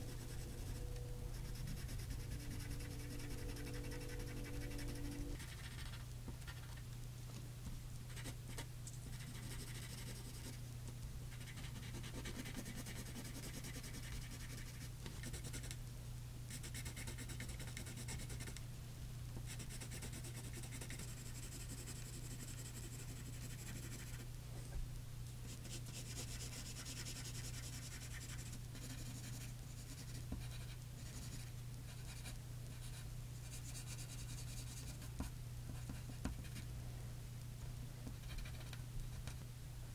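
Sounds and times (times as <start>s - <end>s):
pencil scratching on paper: 0.0s - 6.0s, 8.1s - 10.6s, 11.3s - 15.7s, 16.6s - 18.5s, 19.5s - 24.2s, 25.5s - 35.1s
steady low hum: 0.0s - 39.9s.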